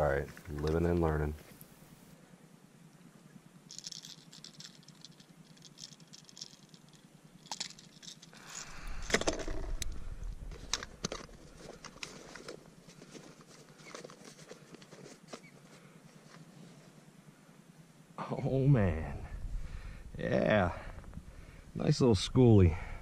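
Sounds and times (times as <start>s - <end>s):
fishing lure jangling: 3.7s - 9.4s
rush of noise with low rumble: 8.4s - 12.1s, 18.4s - 23.0s.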